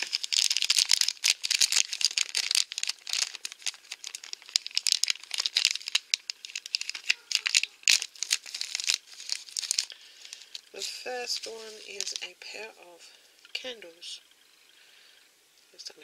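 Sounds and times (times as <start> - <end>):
plastic bag crinkling: 0.0 - 12.7.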